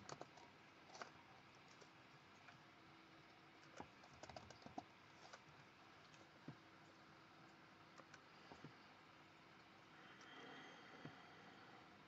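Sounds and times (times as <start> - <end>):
typing on a computer keyboard: 0.0 - 1.9, 3.6 - 4.9.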